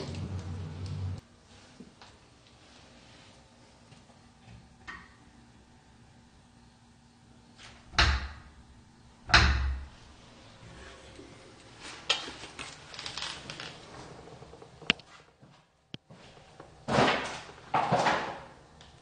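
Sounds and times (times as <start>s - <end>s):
door banging against metal frame: 7.9s - 8.5s, 9.3s - 10.0s.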